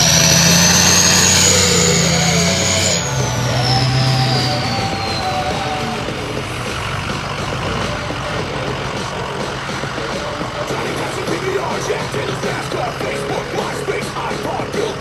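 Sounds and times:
turbo whistle falling in pitch: 0:00.0 - 0:06.4
diesel engine running: 0:00.0 - 0:15.0.

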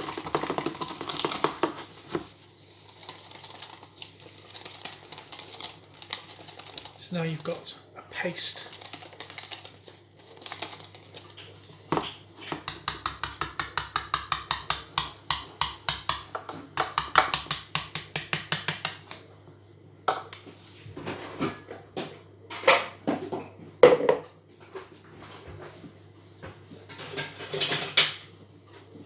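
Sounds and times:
bowl and whisk clattering: 0:00.0 - 0:02.3, 0:26.9 - 0:28.4
whisk beating batter in bowl: 0:00.0 - 0:11.4, 0:12.0 - 0:19.0.

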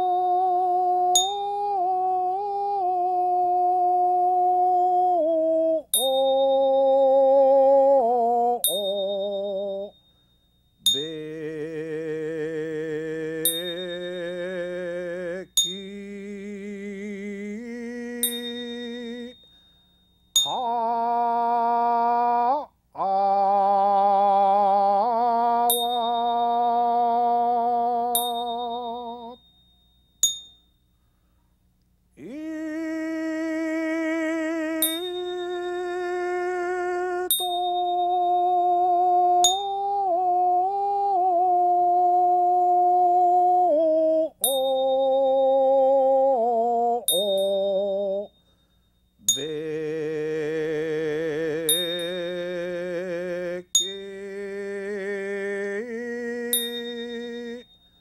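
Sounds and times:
man singing long drawn-out notes: 0:00.0 - 0:10.0, 0:10.9 - 0:19.4, 0:20.4 - 0:29.4, 0:32.2 - 0:48.4, 0:49.2 - 0:57.7
small bell struck: 0:01.2 - 0:01.5, 0:06.0 - 0:06.8, 0:08.6 - 0:11.2, 0:18.2 - 0:20.7, 0:25.7 - 0:26.8, 0:28.2 - 0:30.9, 0:34.8 - 0:35.5, 0:37.3 - 0:38.3, 0:39.4 - 0:39.8, 0:44.4 - 0:45.1, 0:48.4 - 0:49.6, 0:51.7 - 0:52.3, 0:53.8 - 0:54.2, 0:56.6 - 0:58.0.

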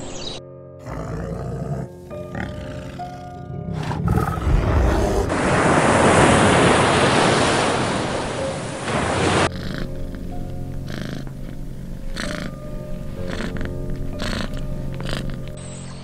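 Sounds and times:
soft background music: 0:00.0 - 0:05.3, 0:08.2 - 0:16.0
bear growling and roaring: 0:00.8 - 0:05.4, 0:09.5 - 0:15.6.

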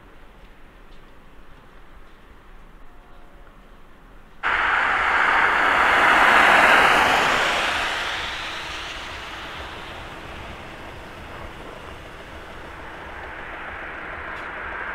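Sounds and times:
car passing: 0:04.4 - 0:14.9.

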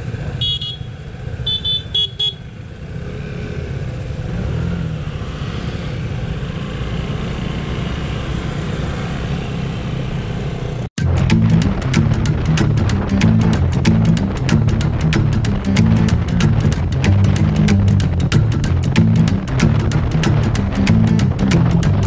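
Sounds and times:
music with a beat: 0:11.0 - 0:22.0.

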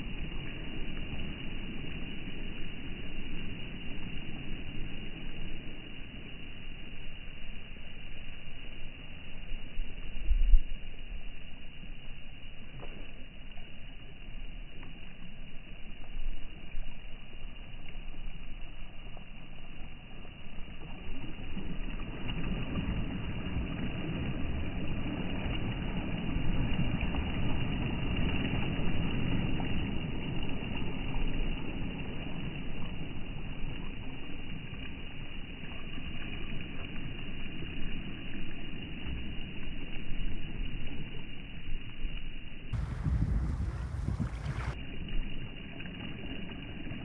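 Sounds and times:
waves washing on pebble shore: 0:42.8 - 0:44.8.

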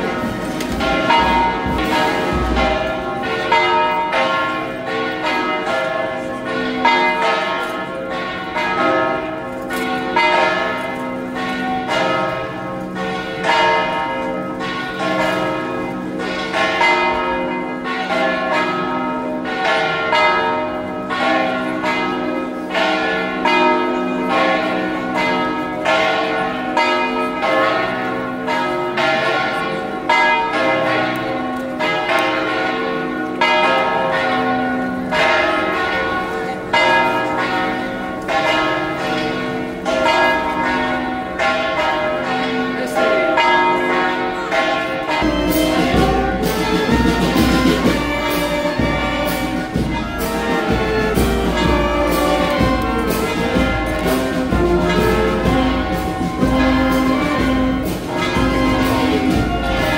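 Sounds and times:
church bells ringing a peal: 0:00.0 - 0:59.9.

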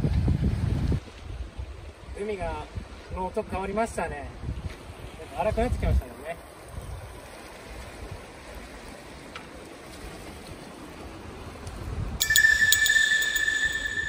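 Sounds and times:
high ringing tones: 0:12.2 - 0:14.0.

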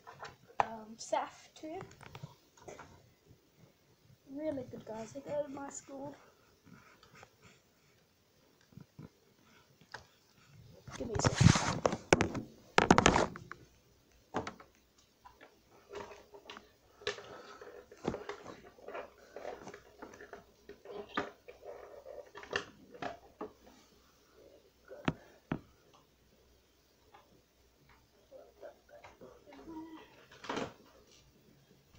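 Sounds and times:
handling noise rustling: 0:08.7 - 0:13.8.

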